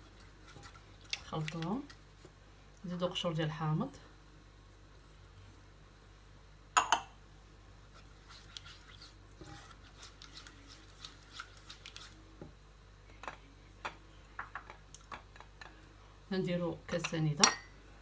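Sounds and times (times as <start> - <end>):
spatula scraping a pot: 7.9 - 12.2.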